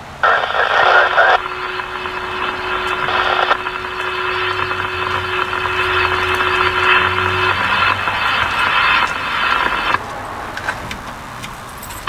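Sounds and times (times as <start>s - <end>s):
warning siren steady tone: 1.2s - 10.0s
low rumble: 1.3s - 10.0s.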